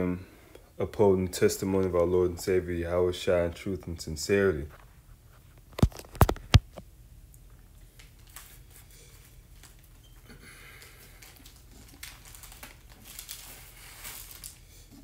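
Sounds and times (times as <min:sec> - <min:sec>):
rustling and scraping of objects: 0:04.6 - 0:06.8, 0:07.8 - 0:15.0.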